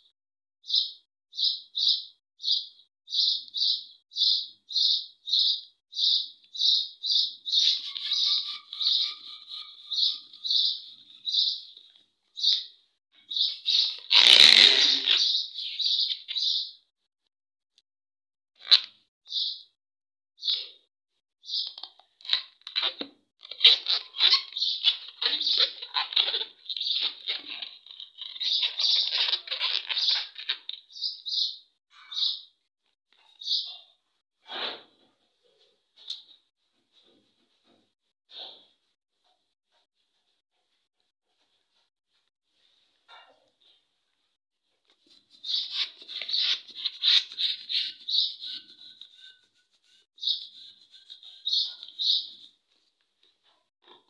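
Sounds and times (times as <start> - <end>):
hand rubbing balloons squeaking: 7.5 - 11.6, 13.5 - 15.4, 22.7 - 30.7, 45.0 - 52.6
short high balloon squeaks: 13.7 - 15.4, 45.4 - 52.4
hand pump inflating balloon: 14.0 - 15.2.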